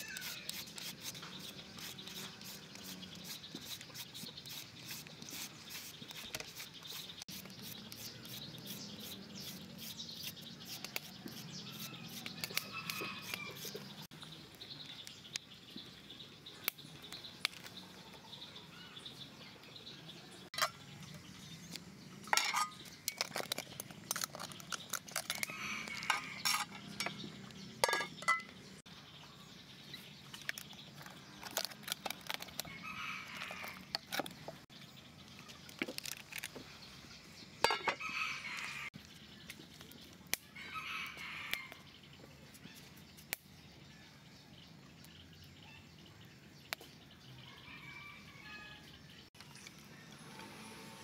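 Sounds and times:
roosters crowing: 0.0s - 0.6s, 11.5s - 14.1s, 25.3s - 27.0s, 32.6s - 34.0s, 37.7s - 39.0s, 40.5s - 41.9s, 47.4s - 48.9s
metal utensils clinking: 22.3s - 24.5s, 26.0s - 27.2s, 27.8s - 28.6s, 37.6s - 38.0s.

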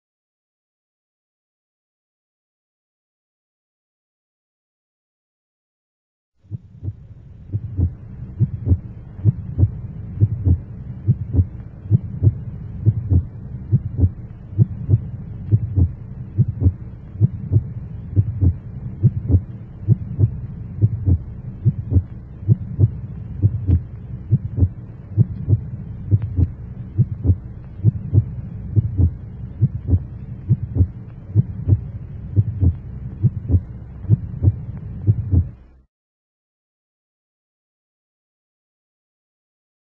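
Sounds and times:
steady low hum: 6.4s - 35.9s
heartbeat-like thumps: 6.5s - 35.6s.

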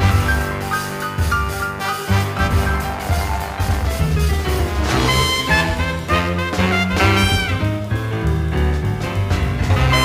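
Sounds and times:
swing jazz music: 0.0s - 10.0s.

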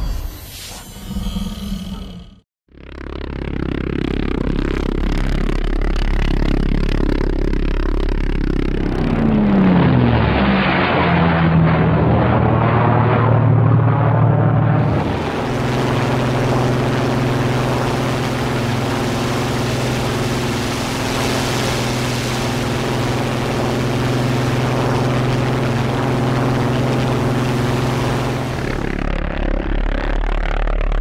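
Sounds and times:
propeller aircraft engine droning: 2.7s - 31.0s
rushing air noise: 14.6s - 29.0s.

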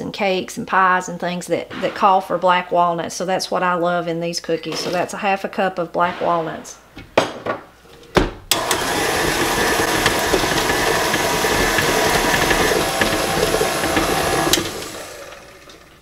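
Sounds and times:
stand mixer motor running: 8.5s - 16.0s.

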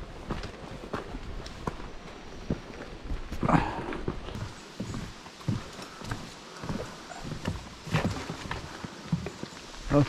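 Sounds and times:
boot footsteps on path: 0.0s - 10.0s.

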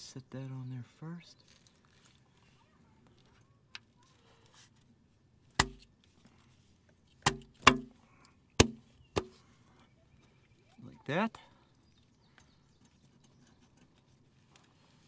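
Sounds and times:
sharp knocks on metal: 5.6s - 5.8s, 7.2s - 7.9s, 8.6s - 9.3s.

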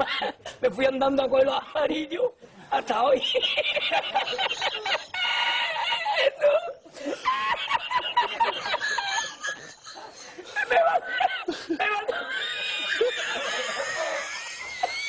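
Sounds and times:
man laughing uncontrollably: 3.3s - 15.0s.

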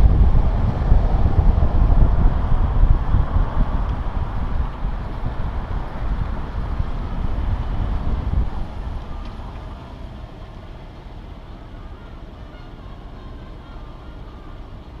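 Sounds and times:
wind on microphone: 0.0s - 10.4s
vehicle hum: 0.0s - 15.0s
vehicle rolling with low rumble: 0.0s - 15.0s.

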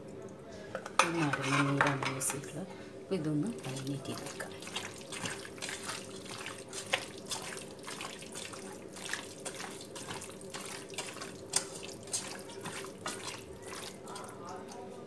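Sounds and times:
wet squelches of mixing chicken: 3.4s - 15.0s.

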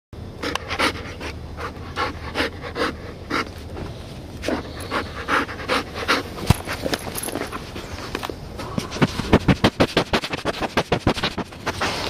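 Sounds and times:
dog panting: 0.4s - 3.6s, 4.4s - 7.8s.

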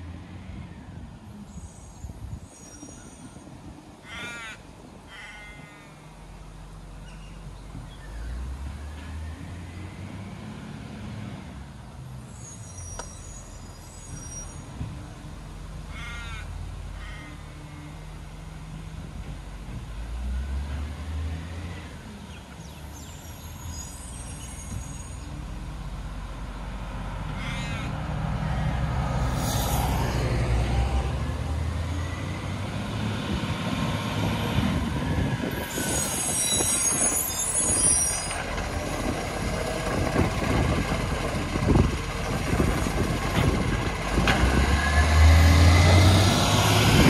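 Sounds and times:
garbage truck diesel engine: 18.0s - 47.0s
air brakes hissing: 29.2s - 30.3s.

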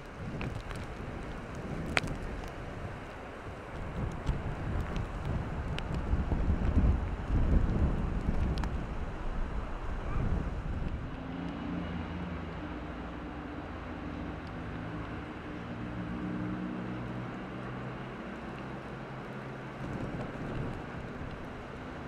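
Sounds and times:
wind on microphone: 0.0s - 12.4s, 19.7s - 22.0s.

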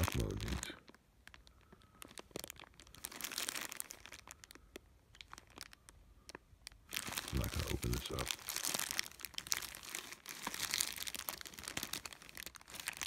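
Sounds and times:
plastic bag crinkling: 0.0s - 13.0s.

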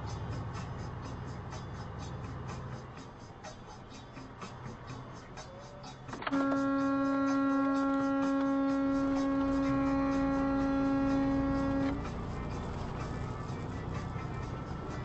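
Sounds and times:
truck horn long blast: 6.2s - 12.3s.

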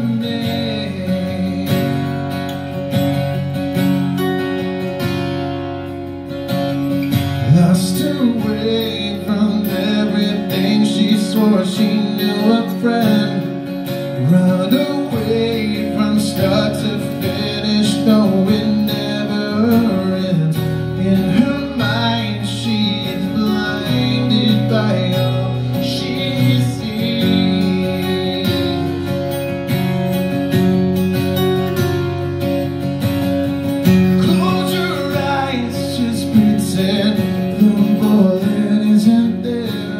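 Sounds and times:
man singing: 0.0s - 2.7s, 7.2s - 29.9s, 33.9s - 39.9s
acoustic guitar strumming: 0.0s - 39.9s.

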